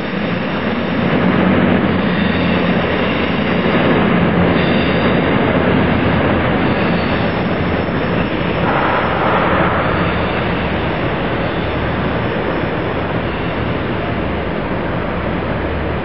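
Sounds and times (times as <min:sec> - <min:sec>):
diesel train rumble and hiss: 0:00.0 - 0:16.0
low hum: 0:00.0 - 0:16.0.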